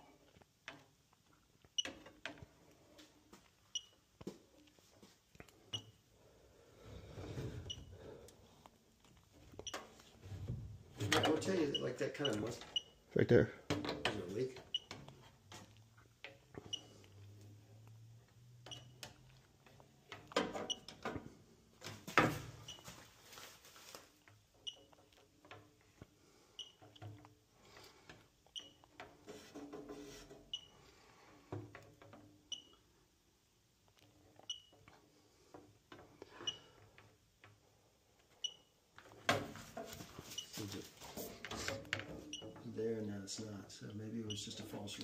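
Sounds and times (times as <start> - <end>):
leak detector beeping: 3.7 - 4.0, 7.6 - 8.0, 11.1 - 13.0, 14.7 - 15.0, 18.6 - 19.0, 22.6 - 22.9, 26.6 - 27.0, 30.5 - 30.8.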